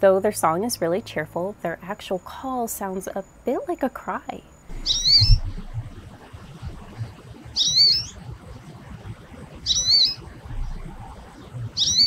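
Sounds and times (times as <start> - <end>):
bird whistled call: 4.8 - 5.5, 7.6 - 8.2, 9.7 - 10.2, 11.8 - 12.0.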